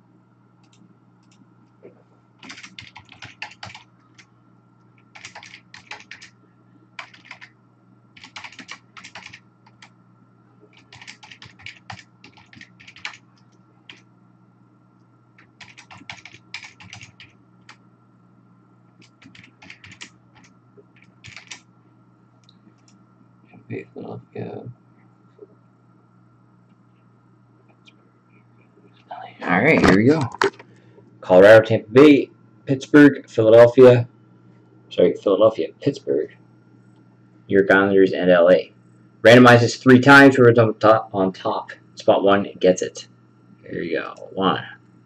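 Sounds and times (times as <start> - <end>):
keyboard typing: 2.4 - 4.3, 5.0 - 6.3, 7.0 - 7.5, 8.2 - 9.9, 10.7 - 14.1, 15.4 - 17.8, 19.0 - 21.7.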